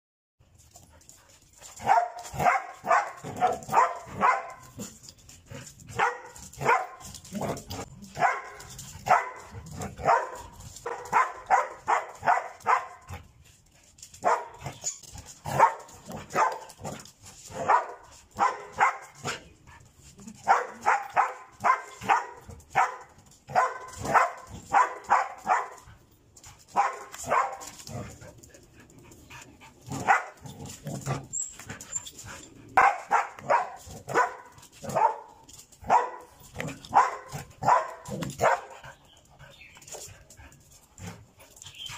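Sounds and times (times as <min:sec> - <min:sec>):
dog barking: 0:01.8 - 0:04.7, 0:06.0 - 0:07.0, 0:08.2 - 0:13.1, 0:14.2 - 0:14.6, 0:15.5 - 0:16.7, 0:17.6 - 0:19.4, 0:20.4 - 0:25.8, 0:26.8 - 0:27.7, 0:29.9 - 0:30.4, 0:32.8 - 0:36.3, 0:36.9 - 0:38.7.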